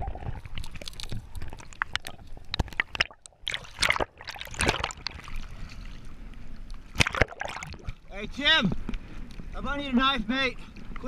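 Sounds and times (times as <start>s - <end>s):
underwater sloshing and gurgling: 0.0s - 9.6s, 10.2s - 11.0s.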